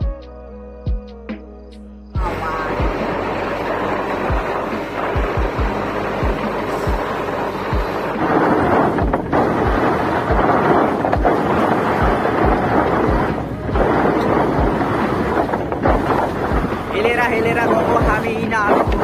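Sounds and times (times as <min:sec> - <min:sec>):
background music with low beat: 0:00.0 - 0:19.0
road rumble: 0:02.2 - 0:19.0
wind buffeting microphone: 0:02.2 - 0:19.0.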